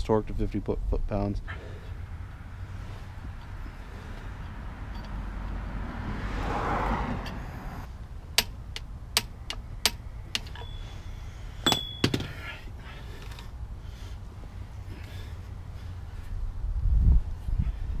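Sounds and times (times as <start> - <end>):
metallic clinks and taps: 4.9 - 5.6, 8.4 - 10.8, 11.6 - 12.3.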